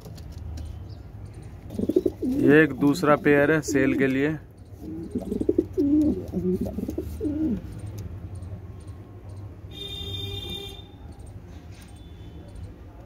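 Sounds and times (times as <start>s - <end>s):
pigeons cooing: 1.6s - 7.9s.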